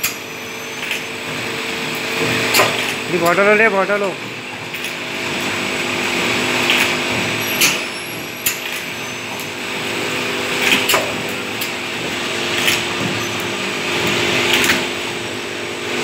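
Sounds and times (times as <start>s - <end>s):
machine clack and hiss: 0.0s - 3.6s, 6.6s - 15.0s
machine motor hum: 0.0s - 16.0s.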